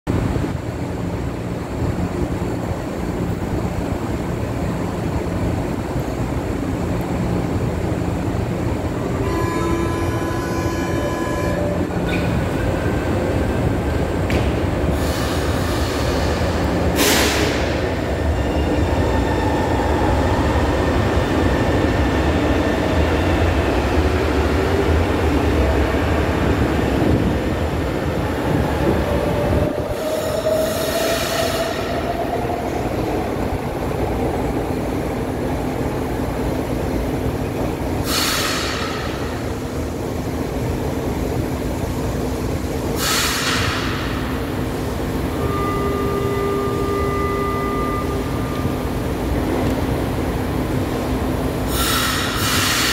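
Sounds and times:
train wheels rumbling: 0.1 - 52.9
door-closing warning tone: 45.3 - 48.9.

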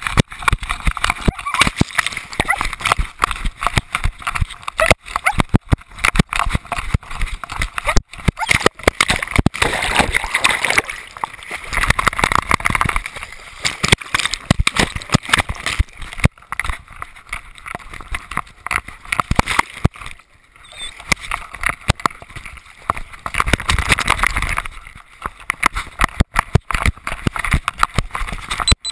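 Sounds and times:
dog running on grass: 0.0 - 10.8
knocks and rattles against camera: 0.0 - 20.2, 20.8 - 28.9
water splashing and sloshing: 0.0 - 28.9.

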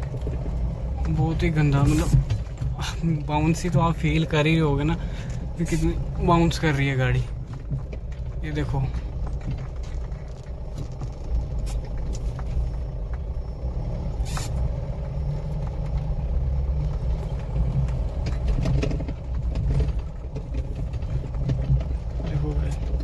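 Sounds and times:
knocks and rattles: 0.0 - 13.5, 15.5 - 23.0
vehicle engine and road rumble: 0.0 - 23.0
brief hiss: 14.2 - 14.6.

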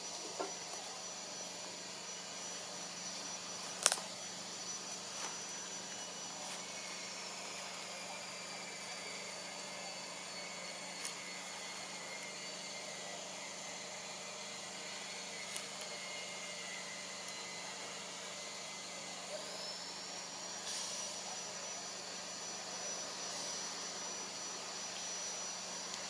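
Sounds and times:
faint high whine: 0.0 - 26.0
sharp clicks: 3.7 - 4.1.

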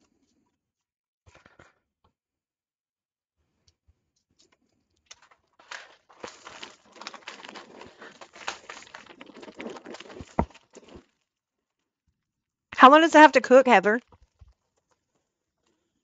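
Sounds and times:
chip bag crinkling: 5.1 - 11.2.

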